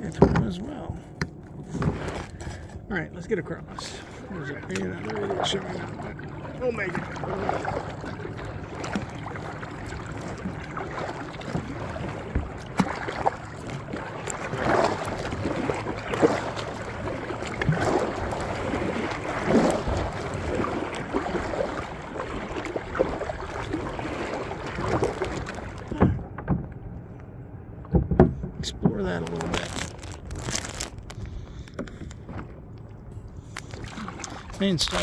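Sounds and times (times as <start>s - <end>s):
paddle strokes splashing water: 1.6s - 2.7s, 3.7s - 26.6s, 33.4s - 35.0s
knocks: 27.9s - 29.0s.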